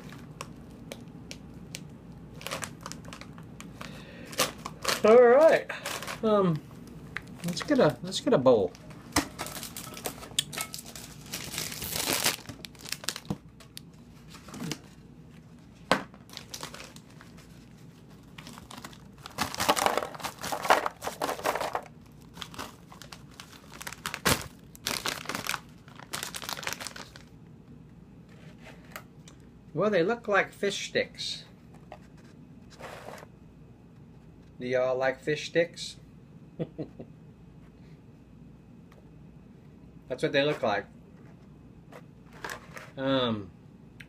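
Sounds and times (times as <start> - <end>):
plastic bag crinkling: 1.7 - 6.4, 7.2 - 14.8, 16.2 - 27.3.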